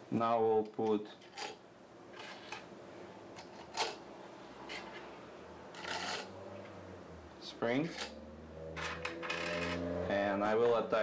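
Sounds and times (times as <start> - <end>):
metal springs clicking and rattling: 8.8 - 9.9.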